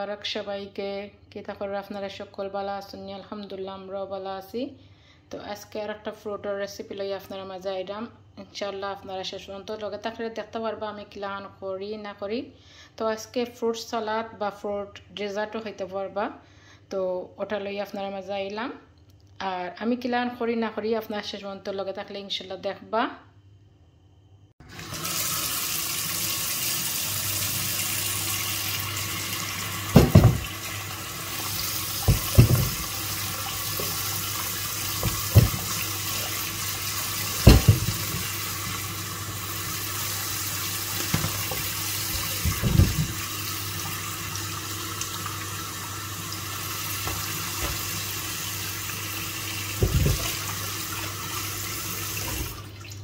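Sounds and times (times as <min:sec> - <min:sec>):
tap water running into bowl: 0:24.6 - 0:53.0
fruit splashing into water: 0:37.4 - 0:38.3.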